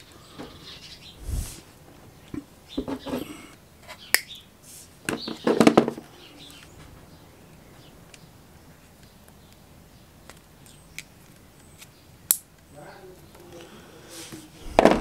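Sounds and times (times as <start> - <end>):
dull thump: 14.7 - 15.0.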